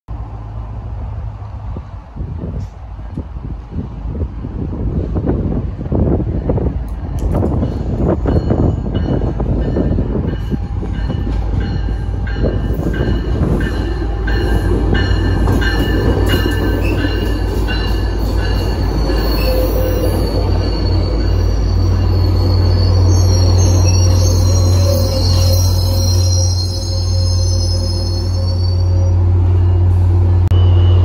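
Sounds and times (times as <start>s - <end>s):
diesel locomotive hum: 0.1s - 31.0s
train coaches rolling past: 0.1s - 31.0s
wheel squeal: 18.2s - 29.9s.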